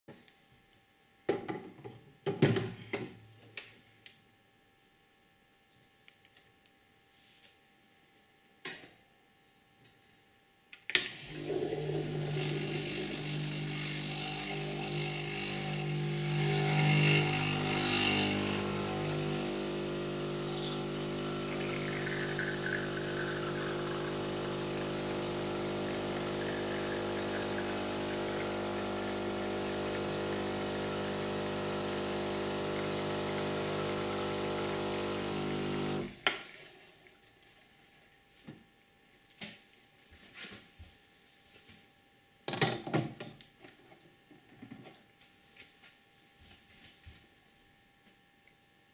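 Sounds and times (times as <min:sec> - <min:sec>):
espresso machine pump humming: 0:11.2 - 0:36.2.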